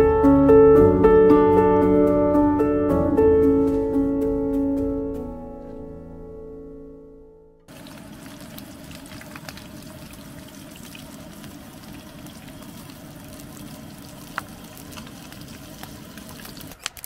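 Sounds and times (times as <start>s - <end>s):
beef sizzling in a frying pan: 7.7s - 16.8s
oil popping and crackling: 7.7s - 17.0s.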